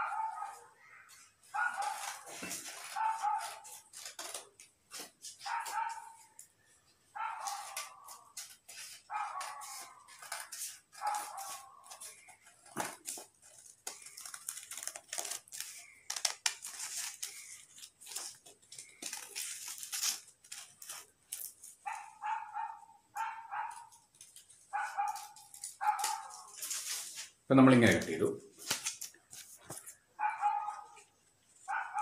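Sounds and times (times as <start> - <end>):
paper rustling: 0.0 - 6.4, 7.2 - 32.0
scissors snipping paper: 1.6 - 6.2, 7.2 - 22.4, 23.2 - 27.2.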